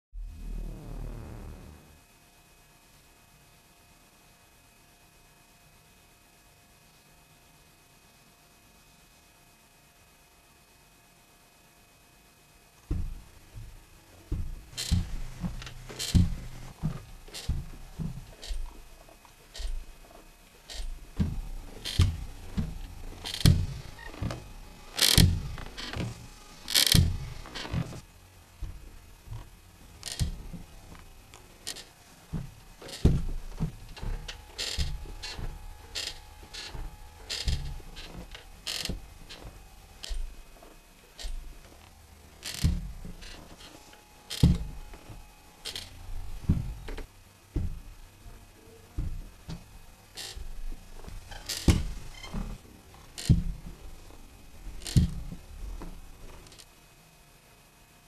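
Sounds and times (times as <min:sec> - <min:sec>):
low thuds: 0:12.9 - 0:18.8
rocking chair creaking and knocking: 0:12.9 - 0:48.1, 0:49.0 - 0:56.7.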